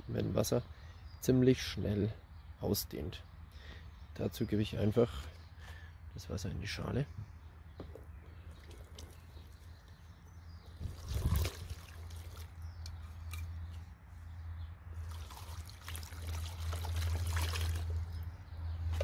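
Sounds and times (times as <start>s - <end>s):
water pouring into plastic tub: 10.8s - 12.5s, 15.0s - 18.2s.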